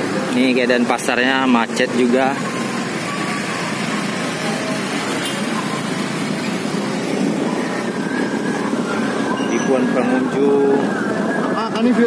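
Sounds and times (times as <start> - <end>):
motorbike and car engines: 0.0 - 12.0.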